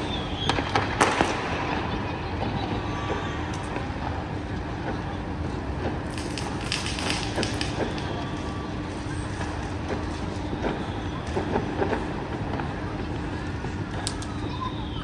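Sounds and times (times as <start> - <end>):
distant firecrackers popping: 0.0 - 14.7
traffic rumble: 0.0 - 15.0.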